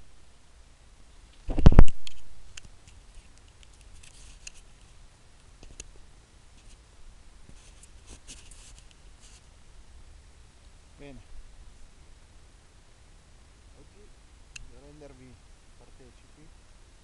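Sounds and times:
brief rustles: 1.3s - 5.0s, 7.5s - 9.5s
small clicks: 1.3s - 5.9s.

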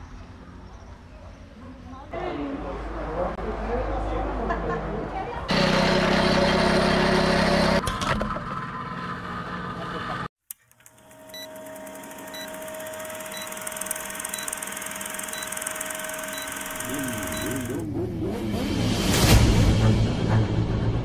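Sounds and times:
juice press motor humming: 10.8s - 17.8s
short high beeps: 12.3s - 12.6s, 13.3s - 17.8s.

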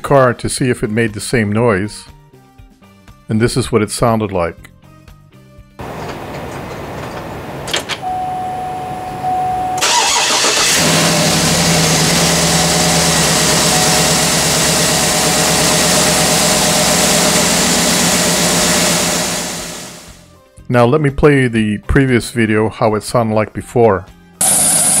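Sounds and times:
car engine starting and idling: 5.8s - 20.2s
short steady tone: 8.0s - 9.8s, 12.3s - 17.6s.

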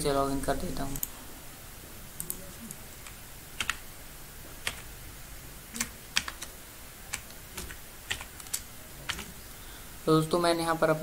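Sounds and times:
keystrokes on computer keyboard: 2.2s - 3.8s, 4.6s - 4.9s, 5.7s - 6.5s, 7.1s - 9.3s.

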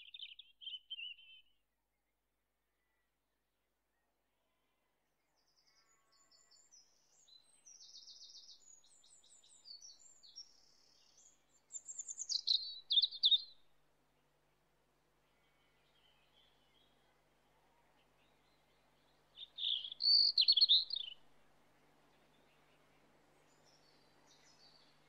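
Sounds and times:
songbird chirping and trilling: 0.0s - 1.5s, 5.4s - 13.6s, 18.0s - 21.2s, 22.0s - 25.0s.

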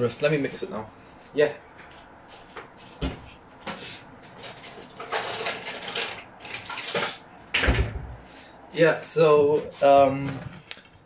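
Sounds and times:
heavy thump: 3.0s - 3.3s.

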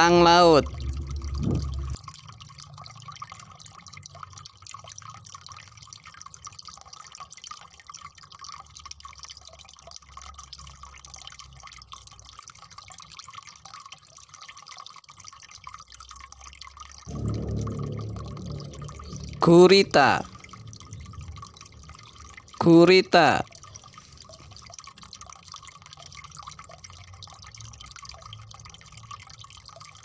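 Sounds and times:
water dripping: 17.1s - 27.5s.

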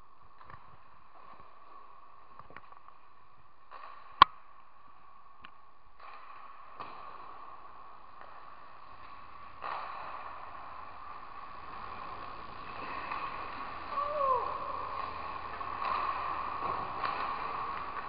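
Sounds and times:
skates scraping ice: 0.0s - 5.4s, 6.0s - 18.0s
pucks and sticks clacking: 3.7s - 4.7s, 5.4s - 18.0s.

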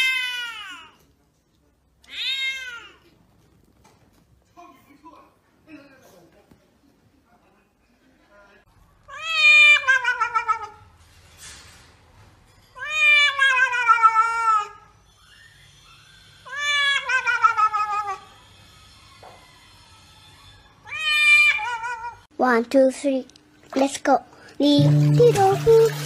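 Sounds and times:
cat yowling: 9.1s - 10.8s, 16.4s - 18.3s, 20.8s - 22.2s.

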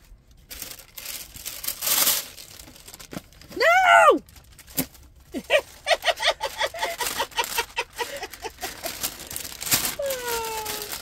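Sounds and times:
paper crinkling: 0.0s - 3.5s, 4.2s - 11.0s
woman cackling laughter: 5.3s - 9.0s.

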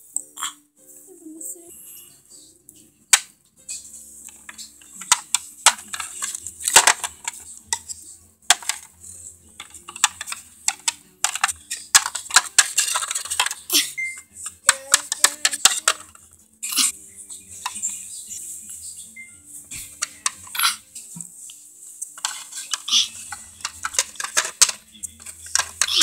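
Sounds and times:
quiet background music: 0.0s - 26.0s
plastic toys clattering: 3.1s - 16.9s, 17.6s - 18.0s, 19.7s - 20.9s, 22.2s - 26.0s.

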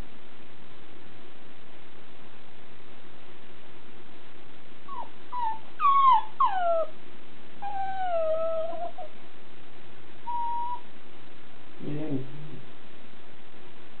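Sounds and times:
dog whining: 4.9s - 7.0s, 7.6s - 9.2s, 10.2s - 10.9s.

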